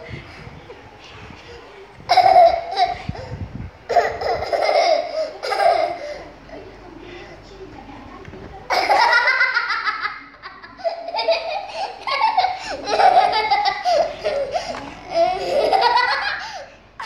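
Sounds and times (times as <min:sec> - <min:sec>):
young child laughing: 0:02.1 - 0:06.2, 0:08.7 - 0:16.7.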